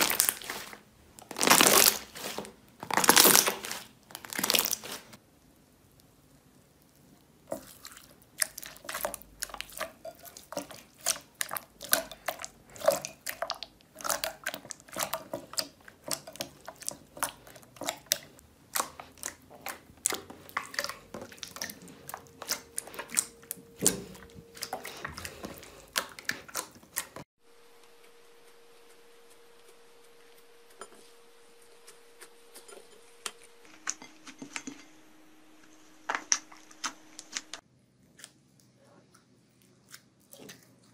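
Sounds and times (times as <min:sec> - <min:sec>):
faint steady hum: 0:00.0 - 0:40.9
slime squishing with wet pops: 0:05.9 - 0:27.2.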